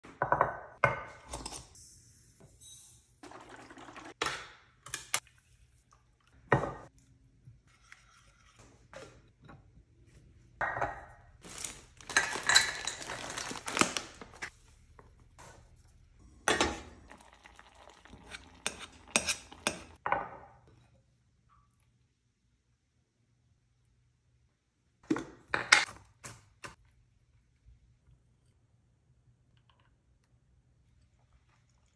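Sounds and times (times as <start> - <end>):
plastic bag rustling: 11.4 - 14.5.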